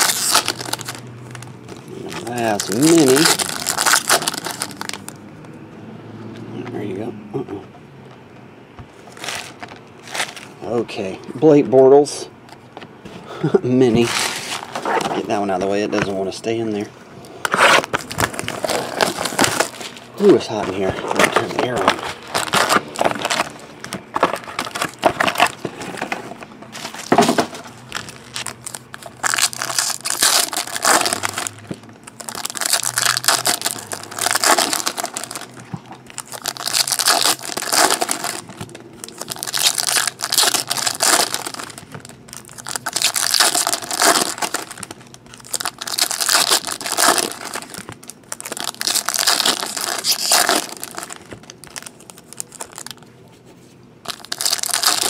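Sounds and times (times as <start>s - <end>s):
foil wrappers crinkling and tearing: 0.0s - 5.2s, 9.1s - 10.5s, 17.4s - 53.2s, 54.0s - 55.0s.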